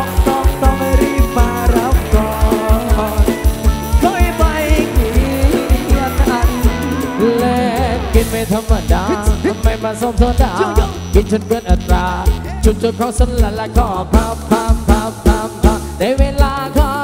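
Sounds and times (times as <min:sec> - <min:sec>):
fast kick drum beat: 0:00.0 - 0:06.9
wavering lead melody: 0:00.0 - 0:13.1
live band music: 0:00.0 - 0:17.0.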